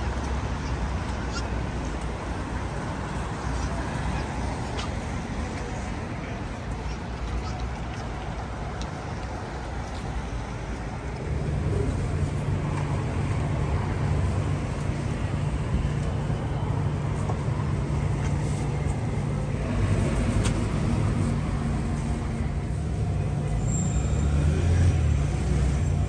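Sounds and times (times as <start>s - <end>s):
low engine rumble: 0.0s - 26.0s
passing vehicles: 0.0s - 26.0s.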